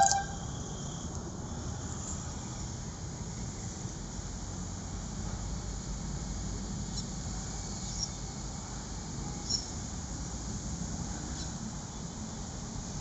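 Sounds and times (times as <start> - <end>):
short high chirps: 0.0 - 0.5.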